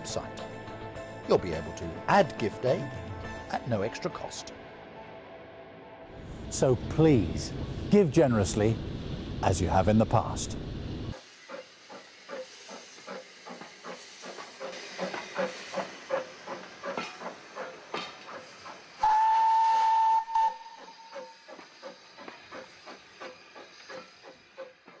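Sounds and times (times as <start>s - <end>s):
steam locomotive exhaust beats: 6.1s - 25.0s
steam whistle blast: 19.0s - 21.3s.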